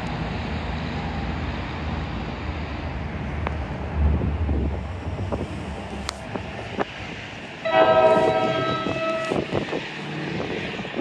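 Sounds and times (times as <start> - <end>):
locomotive air horn blast: 7.6 - 9.6.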